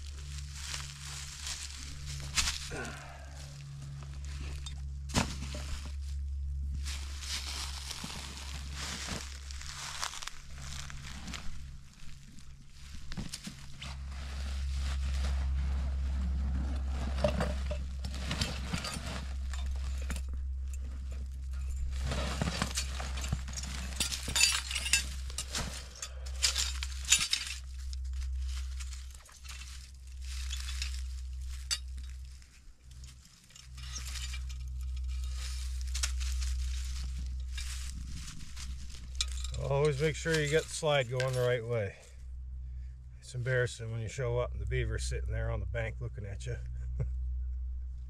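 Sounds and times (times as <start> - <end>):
metal trap clinking and rattling: 17.0 - 32.3, 32.9 - 41.6.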